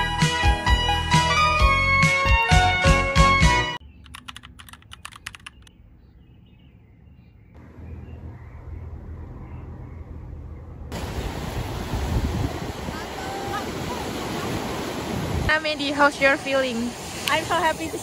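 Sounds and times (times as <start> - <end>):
faint outdoor ambience: 3.8 - 18.0
surf washing onto beach: 10.9 - 18.0.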